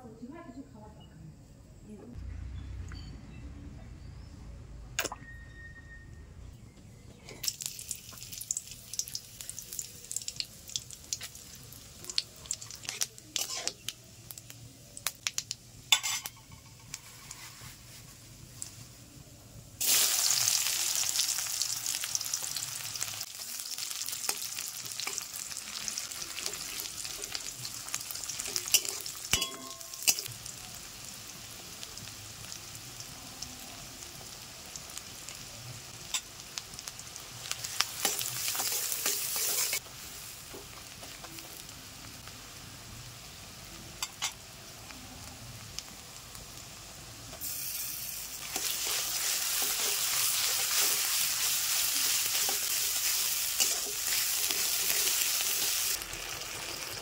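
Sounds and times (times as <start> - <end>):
chillies popping in hot oil: 7.4 - 17.4, 19.8 - 43.1, 47.2 - 57.0
onions sizzling in oil: 7.4 - 57.0.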